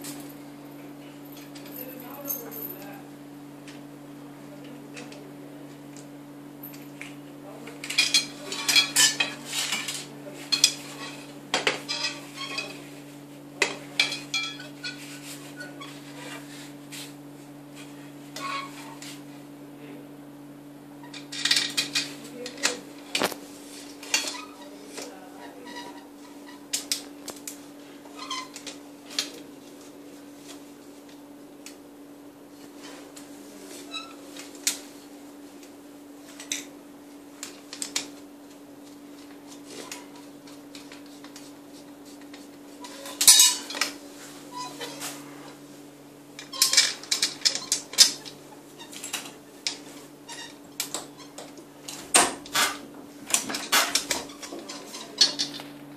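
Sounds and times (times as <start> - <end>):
metal parts clinking and rattling: 0.0 - 3.0, 21.1 - 22.8, 42.9 - 43.8, 46.4 - 48.4, 52.6 - 55.7
steady low hum: 0.0 - 55.9.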